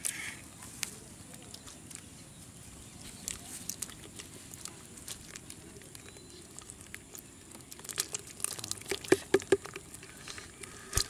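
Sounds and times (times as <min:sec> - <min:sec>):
fish flipping in water: 0:04.5 - 0:10.2.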